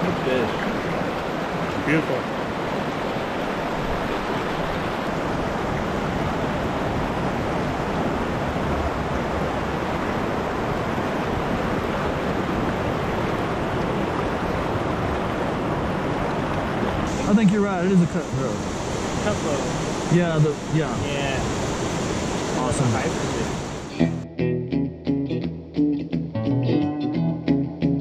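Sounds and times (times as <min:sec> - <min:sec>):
creek rushing over rocks: 0:00.0 - 0:24.2.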